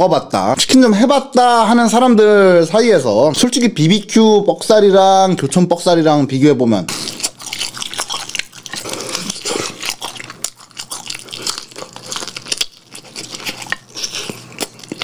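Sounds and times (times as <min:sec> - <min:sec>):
crunchy chewing: 0:06.9 - 0:15.0.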